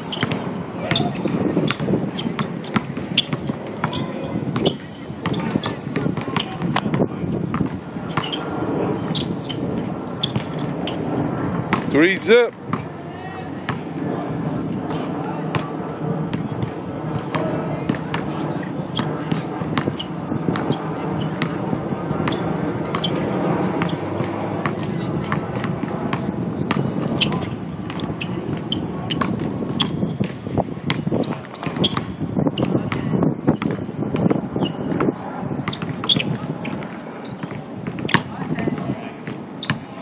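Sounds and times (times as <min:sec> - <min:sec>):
basketball bouncing on asphalt: 0:00.0 - 0:08.5, 0:09.1 - 0:11.9, 0:12.6 - 0:13.0, 0:13.6 - 0:14.0, 0:14.8 - 0:18.4, 0:19.0 - 0:40.0
murmur of voices: 0:00.0 - 0:40.0.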